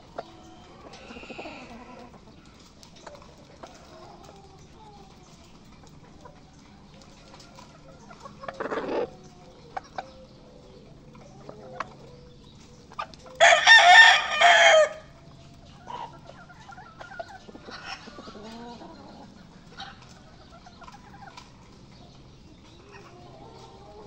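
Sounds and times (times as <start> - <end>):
faint clucks: 0.1 - 13.3
rooster crowing: 13.4 - 15.1.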